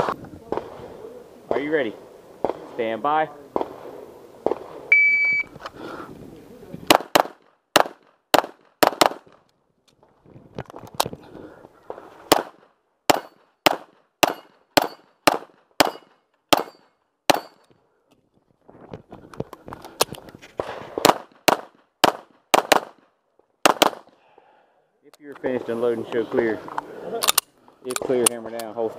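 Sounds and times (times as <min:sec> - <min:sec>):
shot timer beep: 0:04.9 - 0:05.5
pistol shots: 0:06.9 - 0:09.4, 0:12.3 - 0:17.6, 0:20.6 - 0:23.0, 0:23.6 - 0:24.1.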